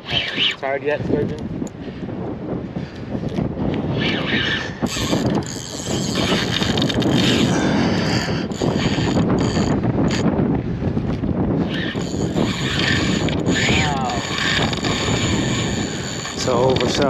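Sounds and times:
fishing reel whirring and clicking: 0:00.0 - 0:00.6, 0:03.7 - 0:10.3, 0:11.6 - 0:17.0.

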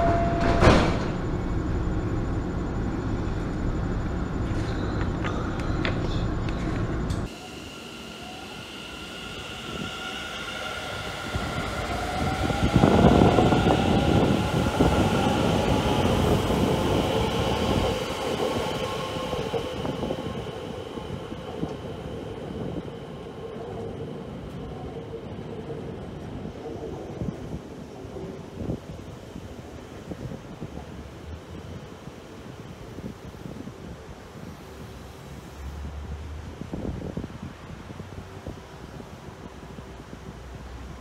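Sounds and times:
train wheels rumbling: 0:00.0 - 0:31.8.

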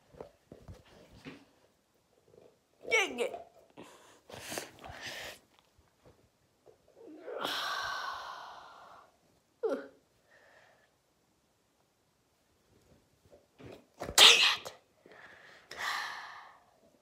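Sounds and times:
person breathing with a hiss: 0:03.9 - 0:05.5, 0:07.3 - 0:09.1, 0:15.1 - 0:16.8.

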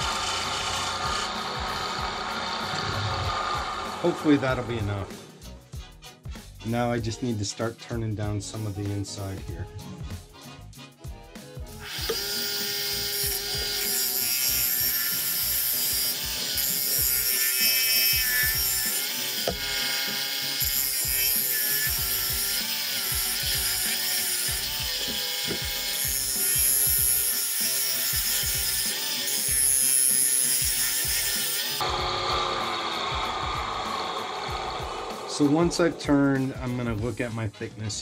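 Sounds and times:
lathe gouge shearing wood: 0:00.0 - 0:05.2, 0:11.8 - 0:36.0.

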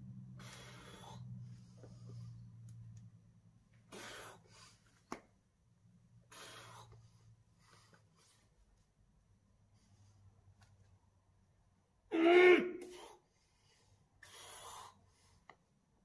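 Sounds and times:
sharp forceful exhalations: 0:03.9 - 0:04.8.

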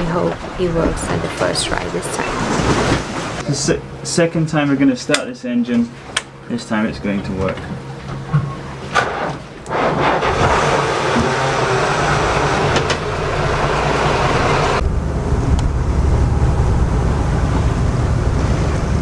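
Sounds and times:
diesel engine running: 0:10.2 - 0:19.0.

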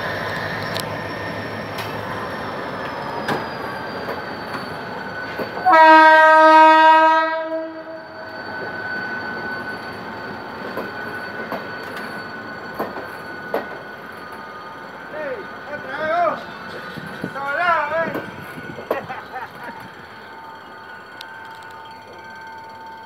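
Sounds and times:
train wheels clicking over rail joints: 0:00.4 - 0:05.7, 0:08.5 - 0:14.5
locomotive air horn blast: 0:05.6 - 0:08.0
high wheel whine: 0:07.9 - 0:23.0.

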